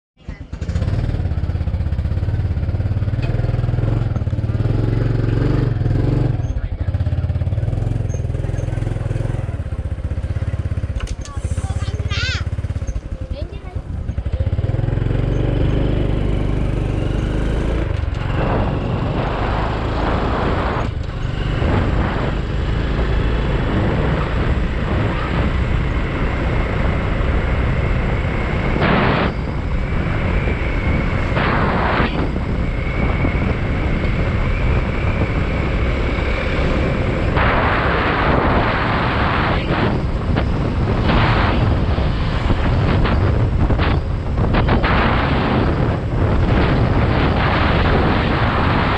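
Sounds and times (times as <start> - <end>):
motorbike engine rumbling: 0.2 - 48.9.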